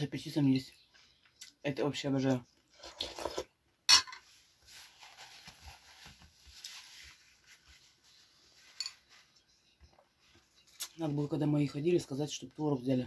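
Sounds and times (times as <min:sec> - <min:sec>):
spoon slurp: 0:02.7 - 0:03.5.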